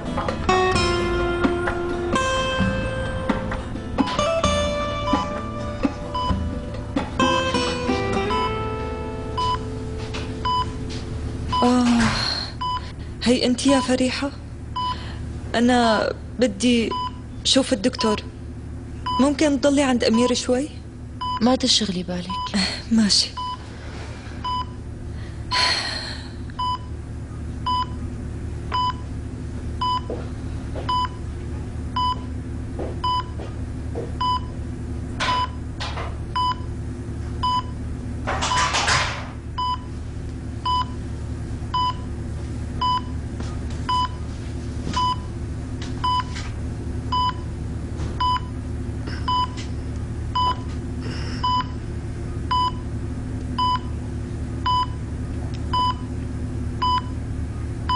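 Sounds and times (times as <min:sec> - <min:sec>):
low steady hum: 0:00.0 - 0:57.9
patient monitor beeping: 0:05.1 - 0:14.2, 0:14.8 - 0:15.0, 0:16.9 - 0:18.3, 0:19.0 - 0:20.5, 0:21.2 - 0:23.7, 0:24.4 - 0:24.8, 0:26.6 - 0:27.0, 0:27.6 - 0:28.0, 0:28.7 - 0:29.1, 0:29.8 - 0:30.2, 0:30.8 - 0:31.3, 0:32.0 - 0:32.3, 0:33.0 - 0:33.4, 0:34.2 - 0:34.6, 0:35.3 - 0:35.6, 0:36.4 - 0:36.7, 0:37.4 - 0:37.8, 0:39.6 - 0:40.0, 0:40.6 - 0:41.0, 0:41.7 - 0:42.1, 0:42.8 - 0:43.2, 0:43.8 - 0:44.3, 0:45.0 - 0:45.4, 0:46.0 - 0:46.4, 0:47.1 - 0:47.5, 0:48.2 - 0:49.7, 0:50.4 - 0:50.7, 0:51.4 - 0:51.8, 0:52.5 - 0:52.9, 0:53.6 - 0:54.0, 0:54.6 - 0:55.0, 0:55.7 - 0:56.1, 0:56.8 - 0:57.2.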